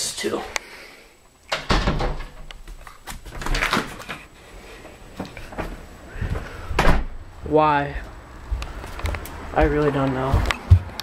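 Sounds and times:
door opening and shutting: 0:01.5 - 0:04.3, 0:05.1 - 0:07.2.

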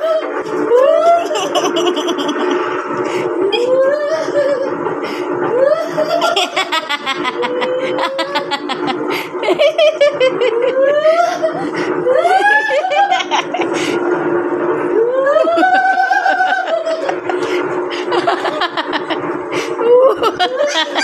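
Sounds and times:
steady low hum: 0:00.0 - 0:21.0
people laughing hard: 0:00.8 - 0:02.7, 0:05.4 - 0:14.0, 0:15.2 - 0:21.0.

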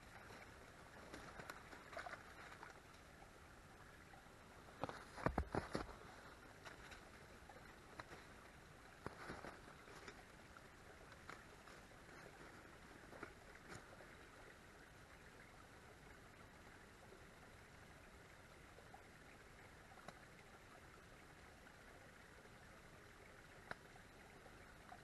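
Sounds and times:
soft clicks and rustles: 0:00.0 - 0:03.2, 0:04.7 - 0:10.4
faint steady hiss: 0:00.0 - 0:25.0.

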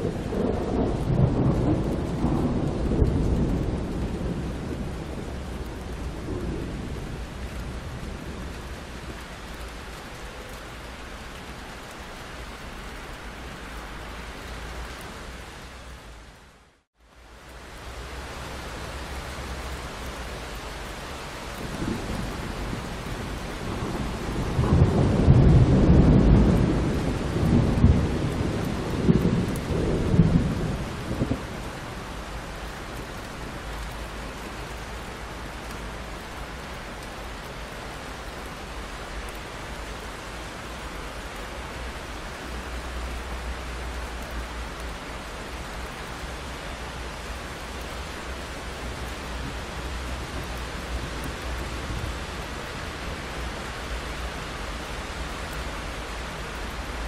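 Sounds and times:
thunder rolling: 0:00.0 - 0:08.6, 0:21.6 - 0:31.7
steady rain: 0:00.0 - 0:57.0.

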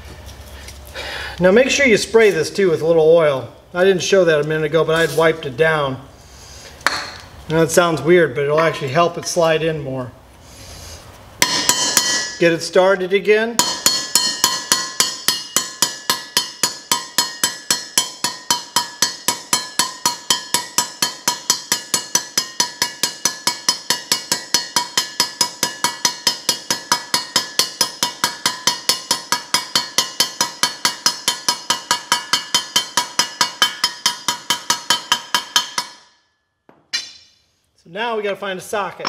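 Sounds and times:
hammer tapping metal bearing: 0:11.4 - 0:12.4, 0:13.6 - 0:37.3.

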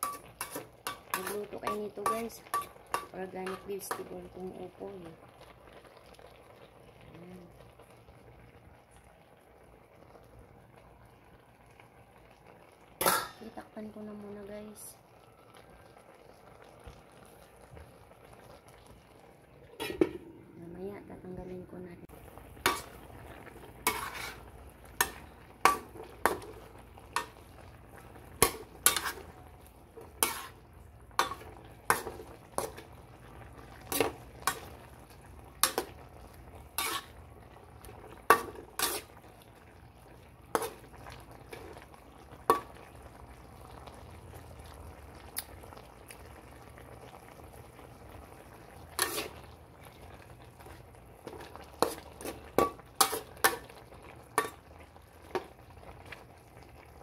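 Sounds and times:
metal spatula scraping a wok: 0:00.0 - 0:04.1, 0:22.6 - 0:23.0, 0:23.8 - 0:26.6, 0:28.4 - 0:29.4, 0:30.0 - 0:30.6, 0:36.7 - 0:37.2, 0:38.3 - 0:39.2, 0:48.9 - 0:49.4, 0:51.8 - 0:53.6
faint simmering: 0:00.0 - 0:57.0.

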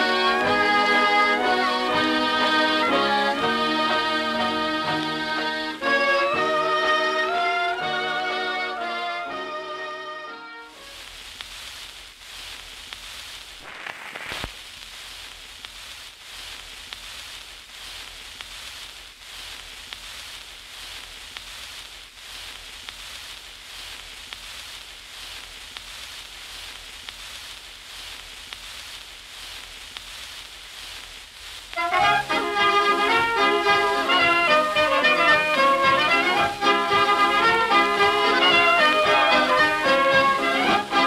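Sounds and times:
steady hiss: 0:00.0 - 0:41.0
crackling ticks: 0:10.8 - 0:41.0.

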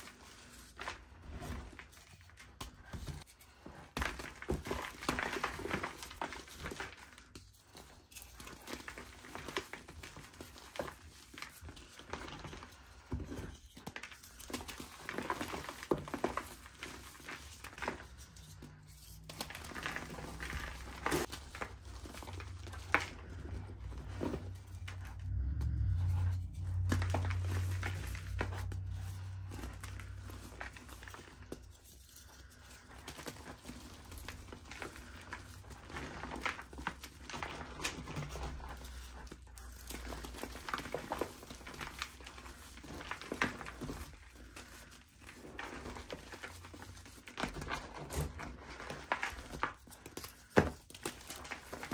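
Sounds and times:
hands crunching dry chunks: 0:00.0 - 0:51.9
low hum: 0:22.5 - 0:30.4.

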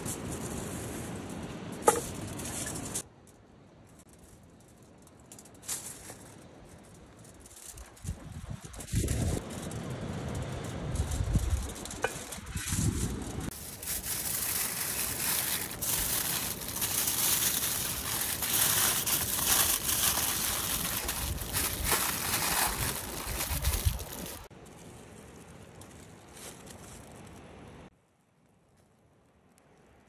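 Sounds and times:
aluminium foil crinkling: 0:03.9 - 0:27.4.

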